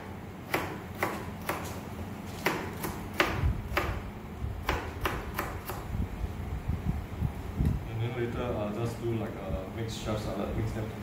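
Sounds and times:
knife chopping on cutting board: 0:00.4 - 0:04.0, 0:04.6 - 0:05.8.

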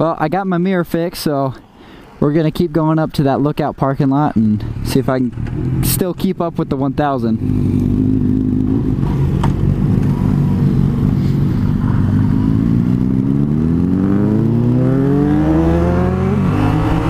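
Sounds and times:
motorcycle engine running: 0:07.4 - 0:15.3.

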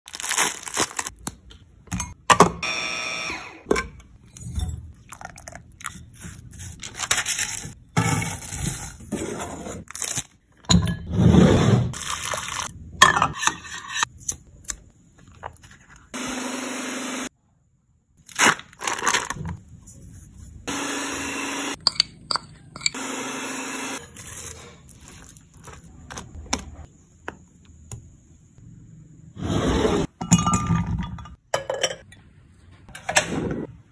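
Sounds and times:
food chopper crunching cookies: 0:16.2 - 0:17.3, 0:20.7 - 0:21.8, 0:23.0 - 0:24.1.

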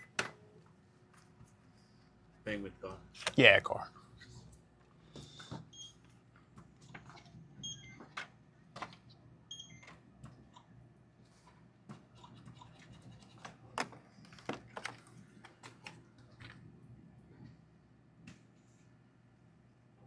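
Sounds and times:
steady low hum: 0:00.4 - 0:20.0
short electronic beeps: 0:07.6 - 0:08.0.

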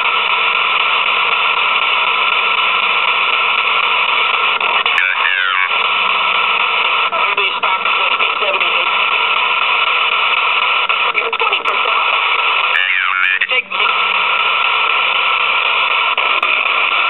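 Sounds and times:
radio static hiss: 0:00.0 - 0:17.0
broken snatches of voice: 0:04.6 - 0:05.8, 0:12.7 - 0:14.0.

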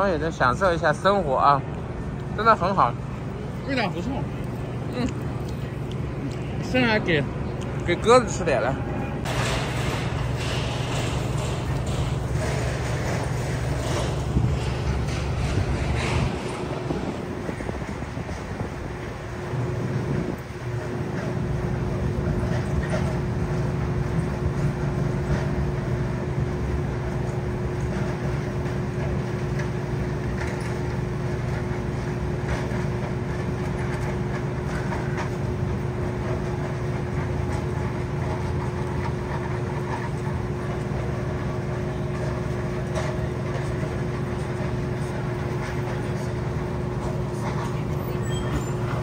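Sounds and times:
low street drone: 0:00.0 - 0:49.0.

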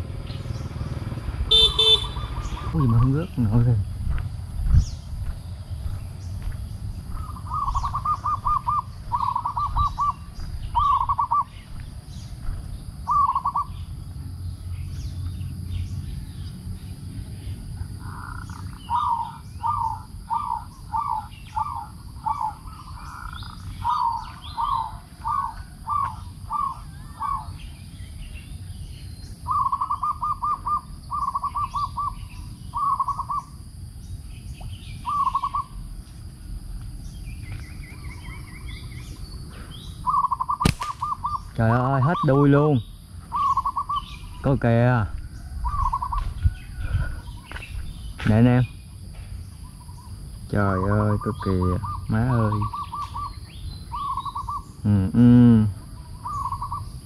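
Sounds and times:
dove cooing: 0:01.5 - 0:03.7, 0:07.0 - 0:11.6, 0:13.0 - 0:13.9, 0:17.8 - 0:27.6, 0:29.4 - 0:33.7, 0:35.0 - 0:35.9, 0:37.8 - 0:42.5, 0:43.3 - 0:44.2, 0:45.4 - 0:47.6, 0:50.6 - 0:57.0.

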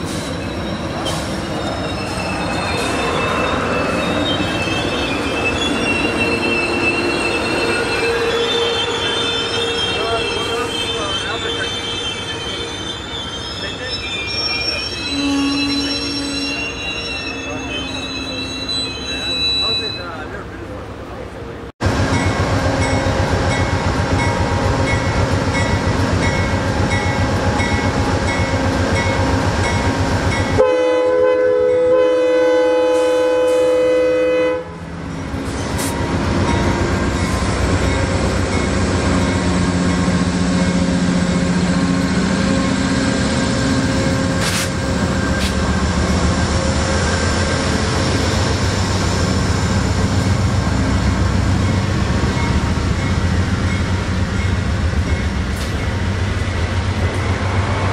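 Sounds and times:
diesel locomotive engines under load: 0:00.0 - 0:57.9
train wheel and rail noise: 0:00.0 - 0:57.9
locomotive air horn: 0:15.0 - 0:16.8, 0:30.6 - 0:34.8.

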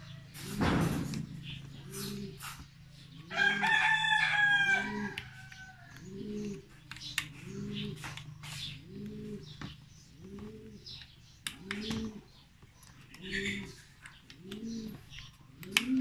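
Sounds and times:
rooster crowing: 0:03.3 - 0:05.9.

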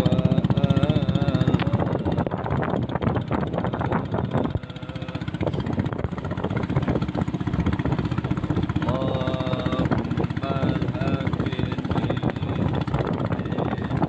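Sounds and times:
boat engine running: 0:00.0 - 0:14.0
water splashing along hull: 0:00.0 - 0:14.0.

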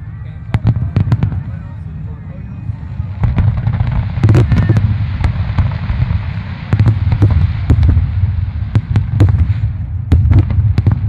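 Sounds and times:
low rumble of booms: 0:02.6 - 0:11.0.

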